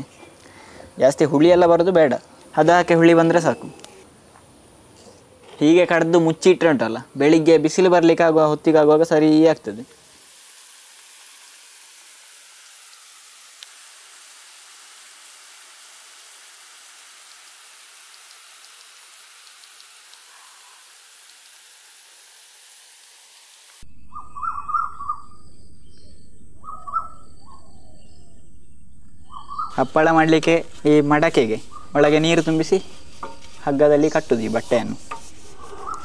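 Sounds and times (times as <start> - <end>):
garden sprinkler hissing: 9.0 - 23.8, 29.7 - 36.0
bird calling: 23.9 - 28.5, 29.2 - 30.3, 31.4 - 33.5, 35.5 - 36.0.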